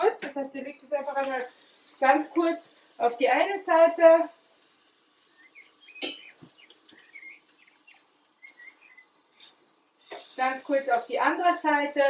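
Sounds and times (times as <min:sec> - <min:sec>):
cricket chirping: 0:00.7 - 0:10.1
faint bird calls: 0:05.2 - 0:10.3.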